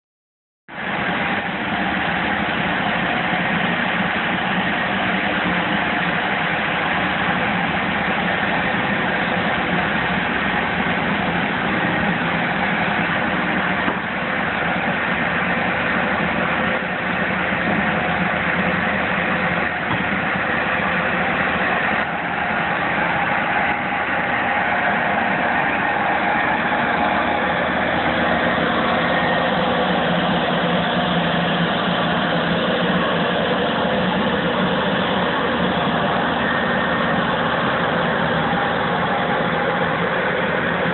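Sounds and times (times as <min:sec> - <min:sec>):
floor scrubber droning: 0:00.7 - 0:40.9.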